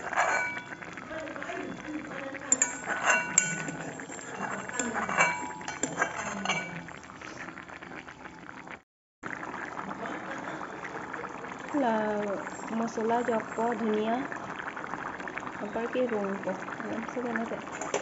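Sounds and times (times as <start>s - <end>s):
spoon clinking on metal pot: 0.0s - 7.4s
spoon stirring curry: 0.0s - 7.6s.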